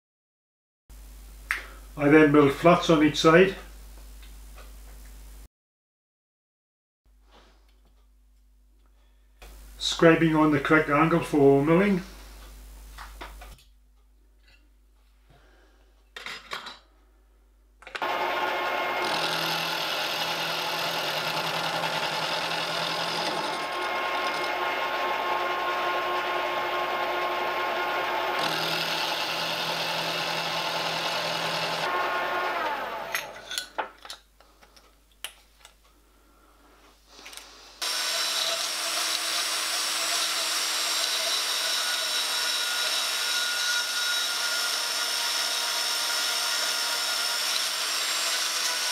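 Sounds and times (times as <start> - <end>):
milling machine cutting metal: 18.0 - 33.5, 37.8 - 48.9
spindle winding down: 18.0 - 33.5, 37.8 - 48.9
bandsaw cutting metal: 18.0 - 33.6, 37.8 - 48.9.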